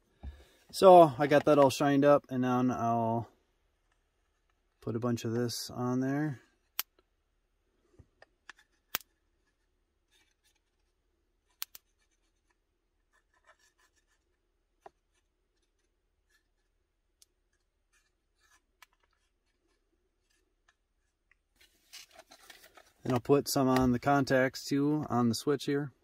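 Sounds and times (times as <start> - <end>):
faint scratching and handling: 3.7 - 5.5, 8.1 - 24.8.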